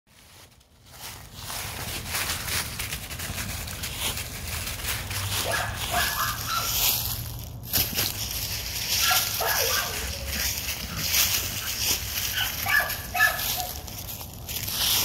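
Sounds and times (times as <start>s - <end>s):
dry leaves crunching: 0.1s - 15.0s
puppy whining and yipping: 9.0s - 11.0s.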